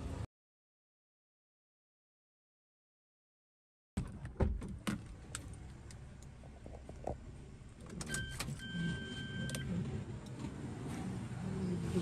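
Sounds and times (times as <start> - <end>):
car electronic warning beep: 8.1 - 9.7.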